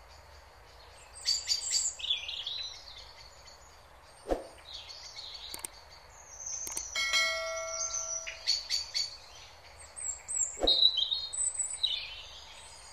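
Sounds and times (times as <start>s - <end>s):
birds chirping: 0.0s - 12.9s
mouse clicks: 5.5s - 5.8s, 6.6s - 6.9s
bright bell chime: 7.0s - 8.5s.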